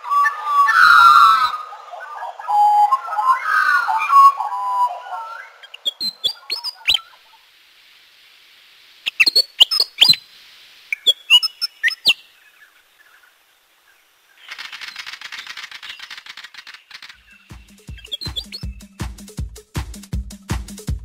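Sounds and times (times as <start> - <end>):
bird chirps: 0.0 - 7.5, 9.0 - 19.0
shaker-like rattle: 14.4 - 19.3.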